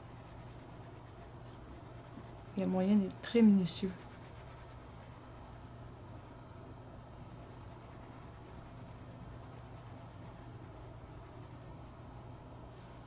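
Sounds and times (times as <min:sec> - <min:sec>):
pencil scratching on paper: 0:00.0 - 0:05.8, 0:07.3 - 0:11.7
low steady hum: 0:00.0 - 0:13.0.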